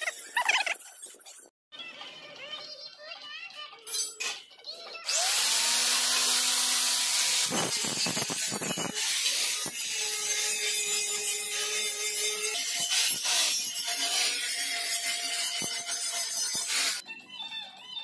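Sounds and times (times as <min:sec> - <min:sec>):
angle grinder cutting steel: 0:05.1 - 0:17.0.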